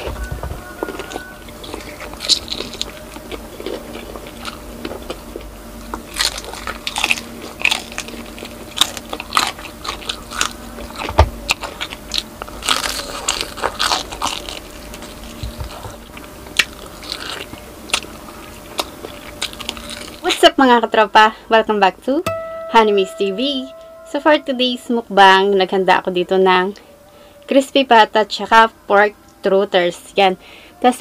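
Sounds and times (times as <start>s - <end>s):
crunching crispy pork skin: 0.6s - 20.3s
chewing: 0.8s - 20.2s.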